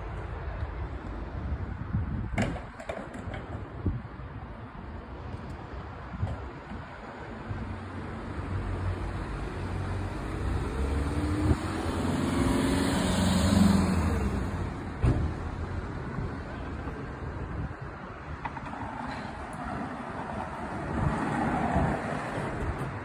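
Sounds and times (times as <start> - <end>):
vehicle passing close by: 10.2 - 14.8.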